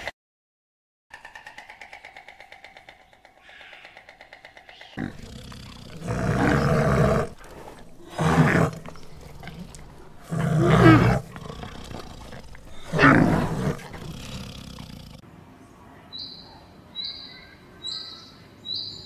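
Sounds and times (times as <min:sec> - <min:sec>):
large animal calling: 0:04.9 - 0:15.2.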